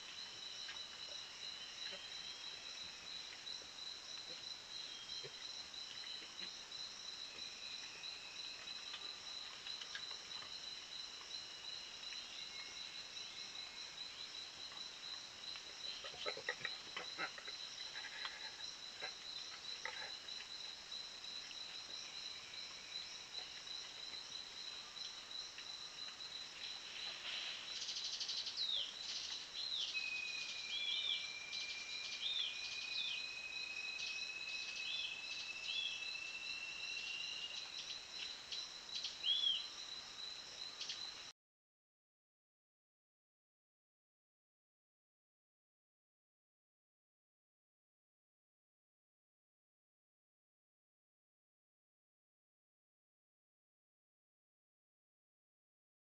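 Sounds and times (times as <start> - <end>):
insect chorus drone: 0.0 - 41.3.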